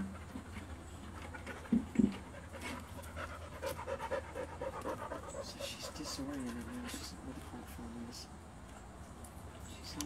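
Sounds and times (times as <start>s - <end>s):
dog panting: 0.0s - 7.4s.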